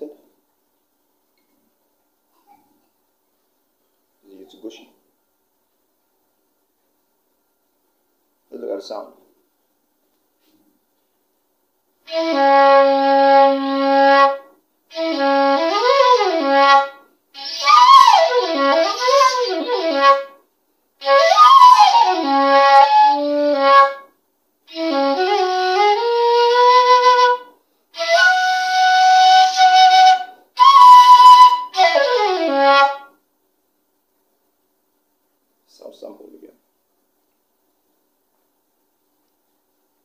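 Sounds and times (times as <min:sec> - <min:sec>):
shakuhachi flute phrases: 0:12.1 - 0:20.4, 0:21.0 - 0:24.1, 0:24.7 - 0:33.1.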